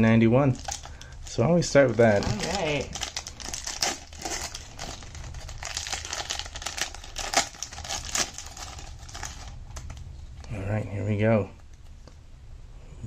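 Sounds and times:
wrapper crinkling: 0.5 - 10.1.

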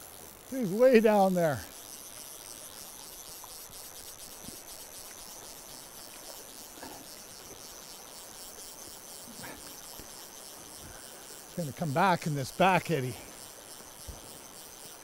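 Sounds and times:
high-pitched chirring: 0.5 - 15.0.

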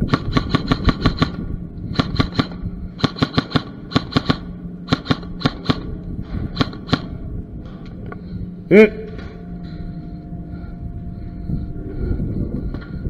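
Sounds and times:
airsoft guns firing: 0.0 - 5.9, 6.5 - 7.1
steady low hum: 0.0 - 13.0.

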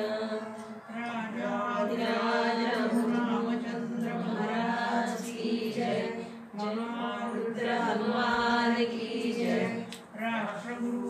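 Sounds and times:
group chanting prayer in unison: 0.0 - 11.0.

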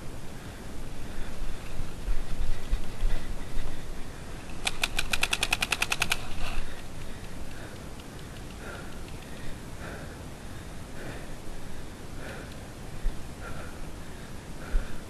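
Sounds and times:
paintball marker rapid firing: 4.6 - 6.5.

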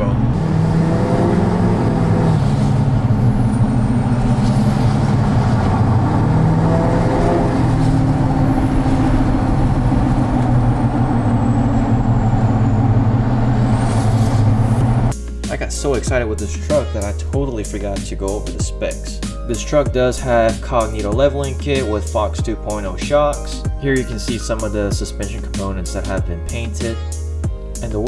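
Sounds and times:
deep diesel engine drone: 0.0 - 15.3.

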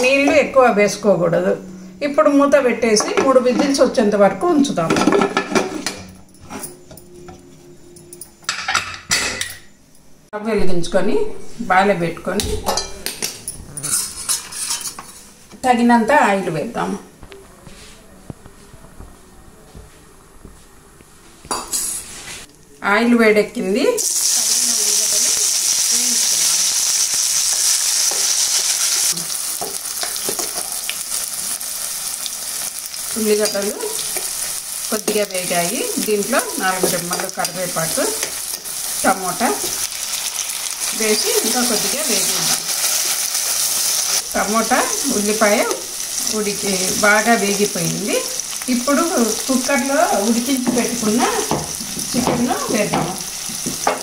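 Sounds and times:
ladle scraping a pan: 13.8 - 15.3
onions sizzling in oil: 24.0 - 54.0.

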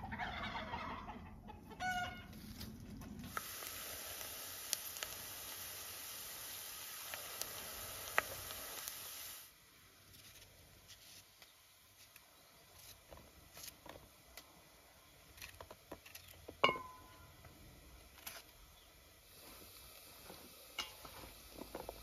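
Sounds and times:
onions sizzling in oil: 3.2 - 22.0
ringing clink on steel bowl: 16.6 - 17.2.

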